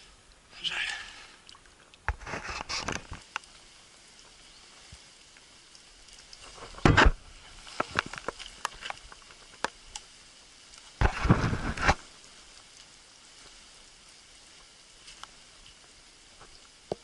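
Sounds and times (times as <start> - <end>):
twigs cracking: 1.4 - 12.9
branches scraping and rustling: 2.1 - 16.8.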